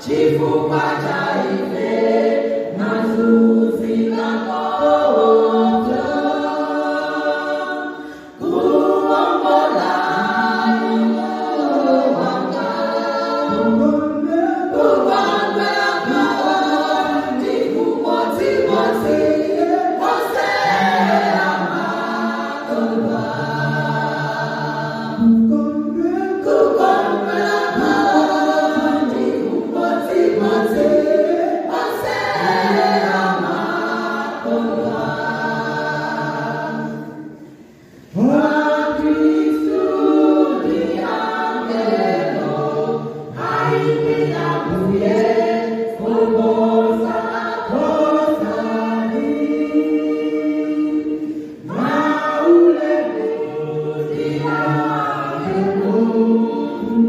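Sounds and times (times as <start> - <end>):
women's choir singing a cappella: 0.0 - 57.0.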